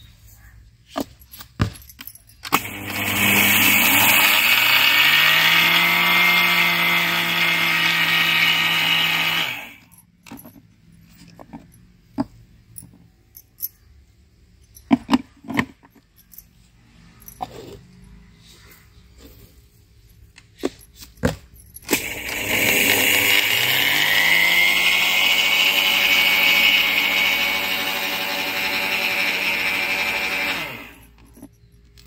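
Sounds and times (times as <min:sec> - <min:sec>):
mixer grinder motor running: 0:02.6 - 0:09.9, 0:21.9 - 0:31.2.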